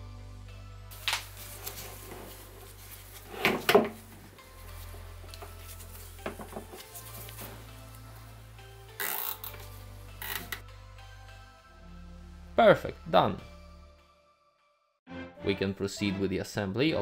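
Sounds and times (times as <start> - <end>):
rubber glove rustling: 0.9 - 10.4.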